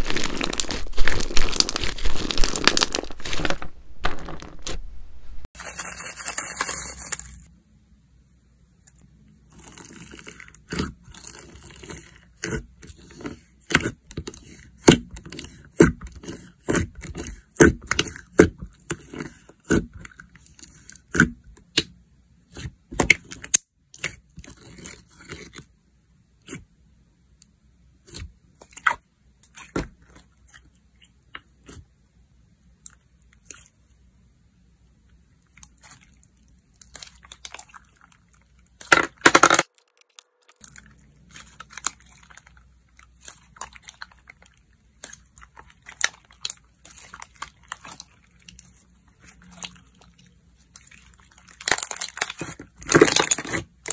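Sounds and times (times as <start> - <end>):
slime crackling: 0.0 - 4.8, 39.6 - 53.9
slime squishing: 0.0 - 4.8, 9.4 - 25.7, 28.0 - 32.0, 32.7 - 34.0, 35.1 - 39.0, 39.6 - 53.9.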